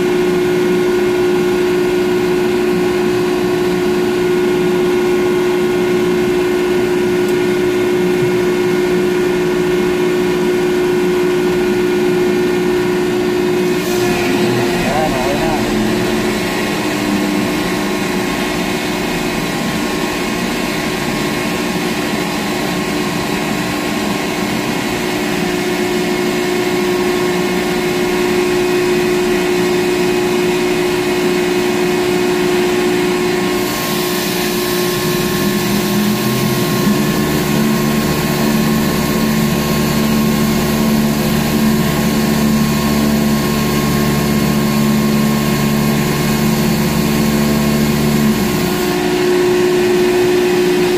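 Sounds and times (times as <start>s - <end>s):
crane machinery humming: 0.6s - 50.9s
deeper hum: 12.6s - 22.7s
steady tones: 13.7s - 19.1s.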